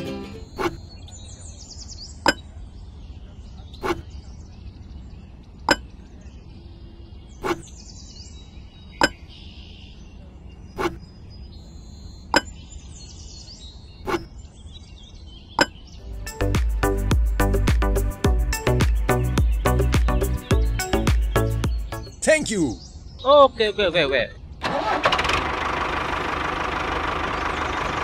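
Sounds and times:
faint bird chirps: 0:00.3 - 0:16.0.

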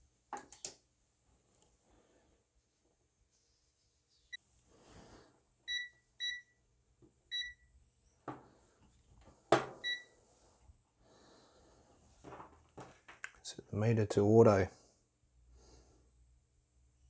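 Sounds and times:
multimeter short high beeps: 0:07.3 - 0:07.7.

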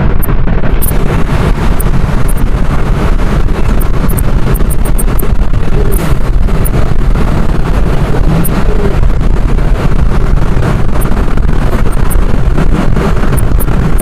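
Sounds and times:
bus engine and road noise: 0:00.0 - 0:14.0
wind buffeting microphone: 0:00.0 - 0:14.0.

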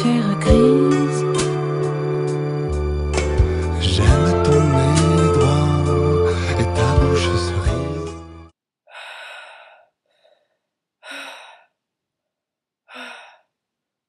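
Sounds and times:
music: 0:00.0 - 0:08.5
person sighing breathily: 0:08.9 - 0:11.8, 0:12.9 - 0:13.6.

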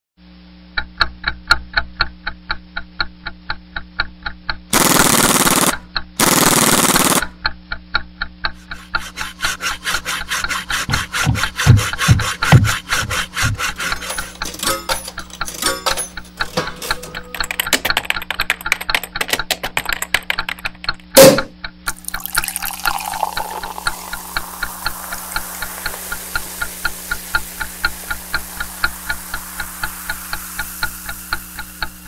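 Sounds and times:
loud rasping stroke: 0:08.6 - 0:15.5, 0:22.0 - 0:32.0
low hum: 0:23.1 - 0:32.0.

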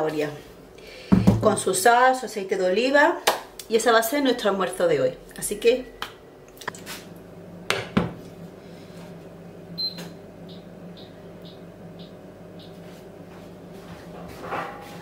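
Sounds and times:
steady low hum: 0:03.4 - 0:15.0
hob touch control beeps: 0:09.8 - 0:12.8.

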